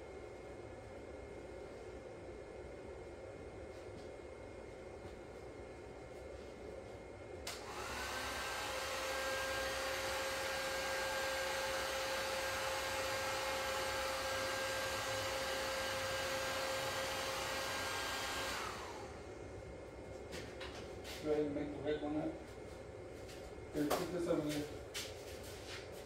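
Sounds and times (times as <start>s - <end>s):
heat gun fan whirring: 0.0s - 26.0s.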